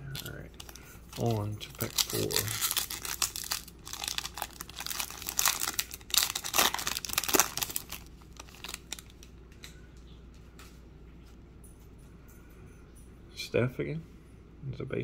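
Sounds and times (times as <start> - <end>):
foil wrapper crinkling: 0.1 - 9.3.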